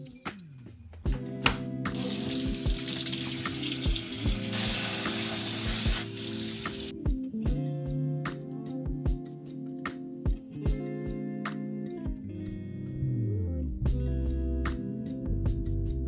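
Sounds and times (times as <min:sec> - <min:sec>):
guitar music with steady beat: 0:00.0 - 0:16.0
faucet running into sink: 0:02.0 - 0:06.9.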